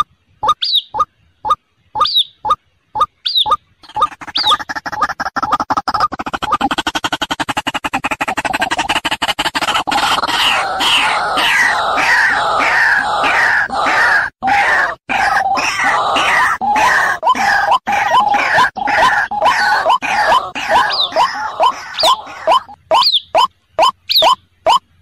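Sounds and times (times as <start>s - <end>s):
waterhen calling: 14.6s - 24.8s.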